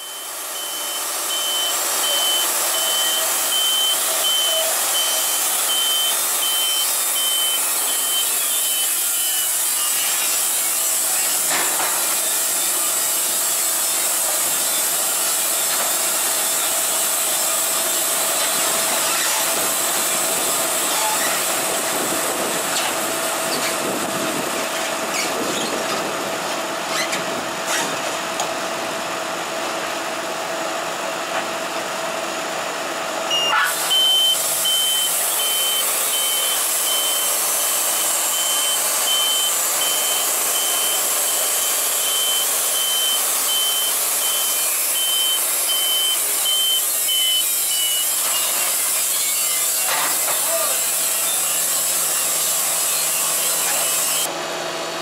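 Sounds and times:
band sawmill running: 0.0 - 55.0
high beeping: 33.3 - 47.3.

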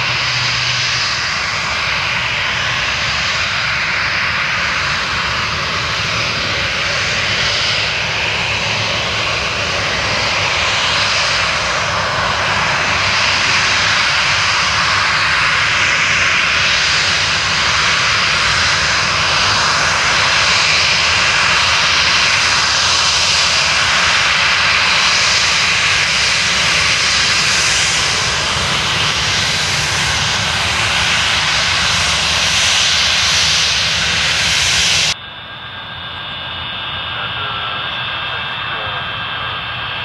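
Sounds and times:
jet engine high whine: 0.0 - 40.0
jet engines roaring: 0.0 - 40.0.

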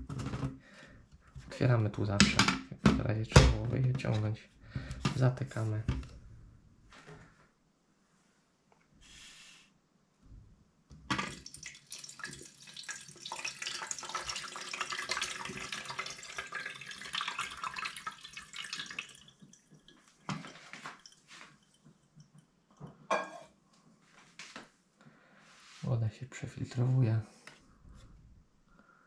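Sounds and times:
water pouring into plastic jug: 11.1 - 22.8
water dripping: 11.1 - 23.1.

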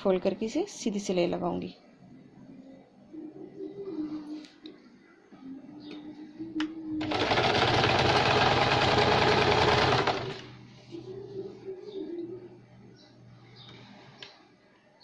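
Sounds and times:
sewing machine running: 7.0 - 10.5.

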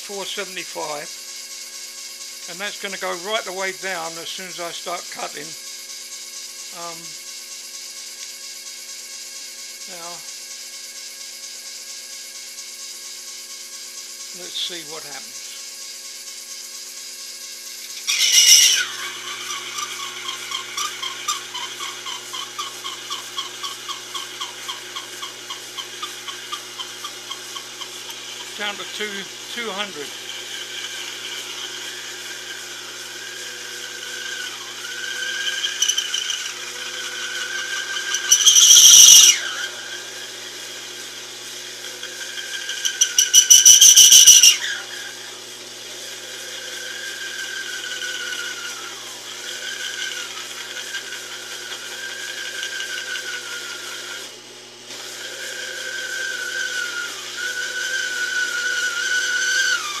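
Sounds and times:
lathe screeching: 0.0 - 8.0, 8.6 - 60.0
lathe cutting whine: 0.0 - 60.0
fast rattle: 35.4 - 39.4.

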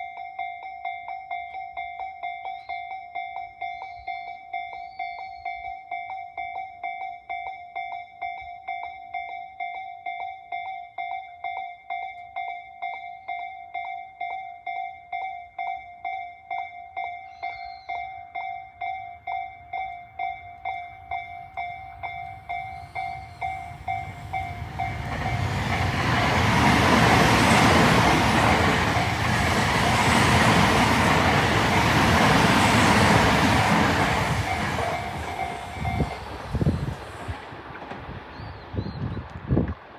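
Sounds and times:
level-crossing bell ringing: 0.0 - 37.2
electric train passing: 16.9 - 38.6.

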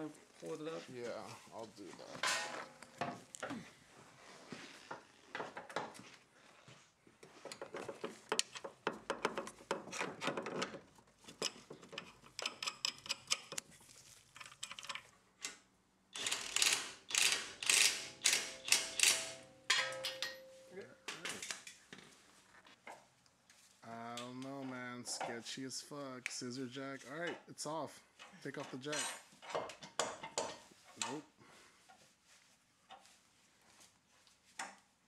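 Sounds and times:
metal tool clanks: 2.2 - 3.2, 18.2 - 21.6
ratchet wrench clicking: 16.2 - 19.4.

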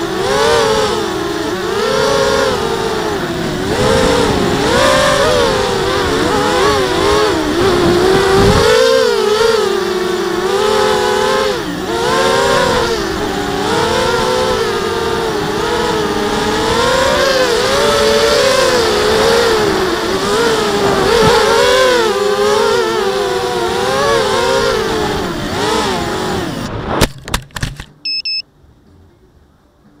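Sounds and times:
quadcopter motors whining: 0.0 - 27.0
short high beep: 28.0 - 28.4.

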